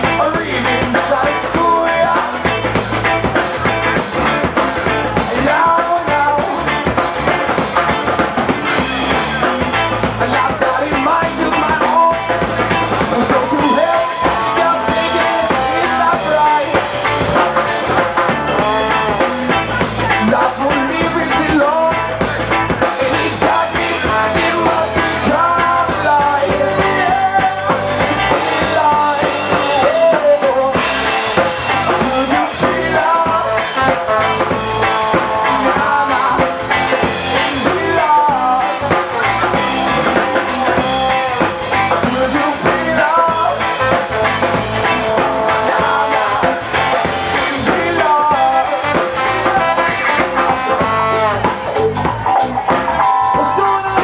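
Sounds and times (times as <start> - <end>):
bass guitar: 0.0 - 54.0
drum kit: 0.0 - 54.0
electric guitar: 0.0 - 54.0
trombone sliding melody: 30.9 - 54.0.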